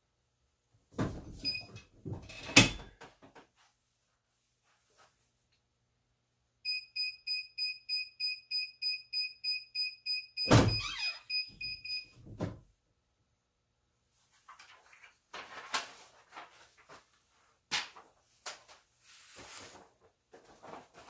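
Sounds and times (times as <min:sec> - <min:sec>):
digital timer beeping: 0:06.7 - 0:12.1.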